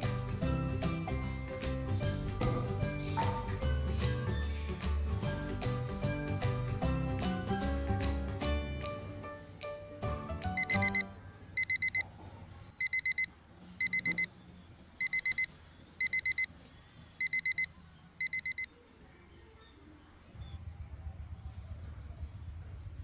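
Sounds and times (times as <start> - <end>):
electronic alarm beeping: 10.6 - 12.0, 12.8 - 14.3, 15.0 - 16.5, 17.2 - 18.7.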